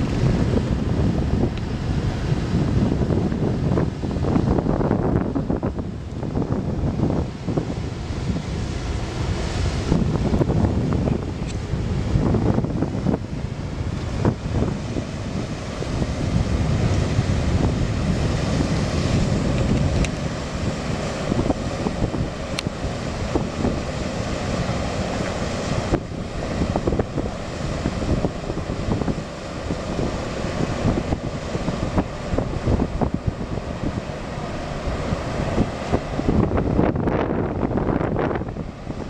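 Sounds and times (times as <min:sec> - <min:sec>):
rush of bow wave and wake: 0:00.0 - 0:39.0
tugboat diesel engine rumble: 0:00.0 - 0:39.0
wind buffeting microphone: 0:00.0 - 0:39.0.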